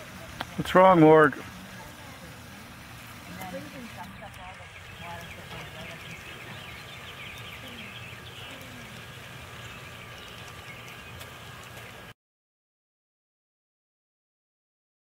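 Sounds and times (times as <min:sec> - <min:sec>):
chorus of high chirping: 0:03.6 - 0:12.1.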